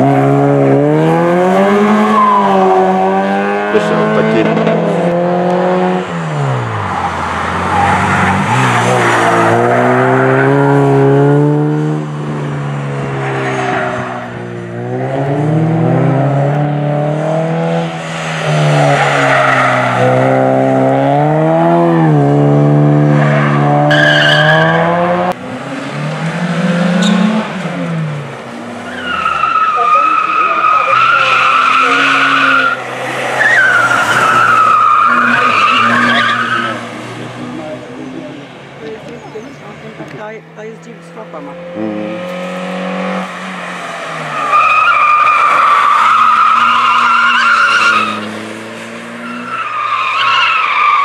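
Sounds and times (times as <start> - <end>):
race car engines revving: 0.0 - 51.0
tyres squealing: 23.3 - 24.9, 28.8 - 42.2, 44.0 - 48.3.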